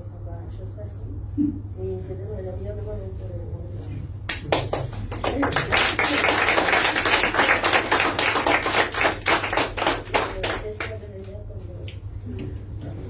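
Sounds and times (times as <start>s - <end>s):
audience applauding: 4.3s - 10.9s.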